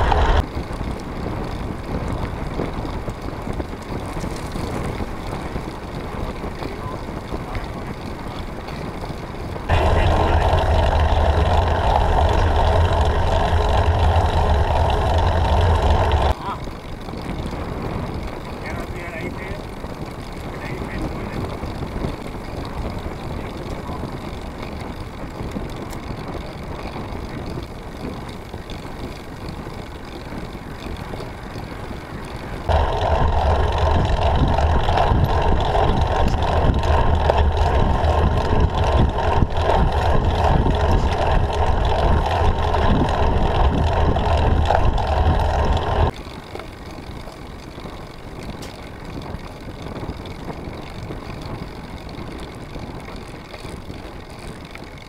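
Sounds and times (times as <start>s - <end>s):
bicycle tyre noise: 0.0s - 55.0s
rumbling wind buffeting: 0.0s - 55.0s
wind rushing: 32.7s - 46.1s.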